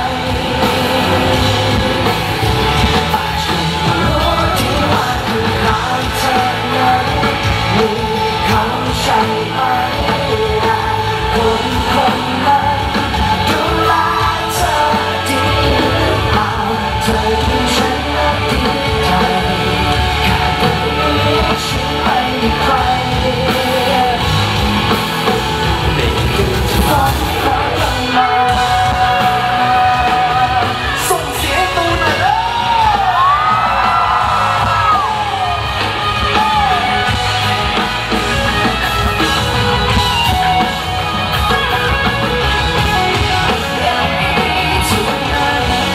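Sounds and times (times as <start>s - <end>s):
crowd yelling and singing along: 0.0s - 45.9s
person singing: 0.0s - 45.9s
pop-rock band playing loud: 0.0s - 45.9s.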